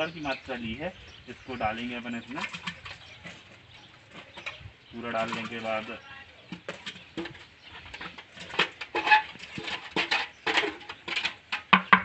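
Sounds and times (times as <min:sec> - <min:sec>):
scoop scraping against pan: 0:06.5 - 0:11.6.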